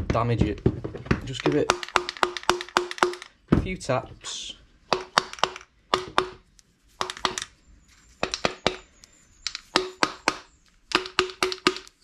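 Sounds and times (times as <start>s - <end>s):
rubber mallet tapping metal: 1.3s - 3.3s, 4.9s - 6.4s, 7.0s - 7.5s, 8.2s - 12.0s.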